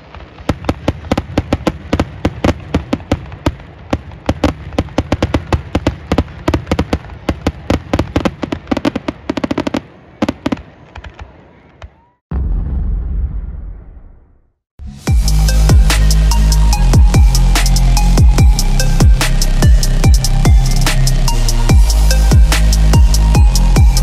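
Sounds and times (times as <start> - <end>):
fireworks bangs and crackles: 0.0 - 14.2.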